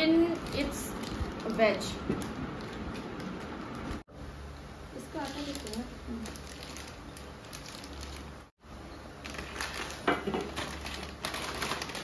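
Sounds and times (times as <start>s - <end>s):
plastic packets crinkling: 0.0s - 4.0s, 5.0s - 8.5s, 9.2s - 12.0s.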